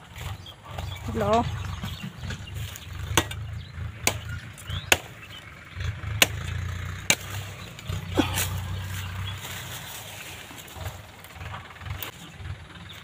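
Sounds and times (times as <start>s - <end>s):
steady low hum: 0.0s - 13.0s
knife chopping branches: 1.2s - 12.2s.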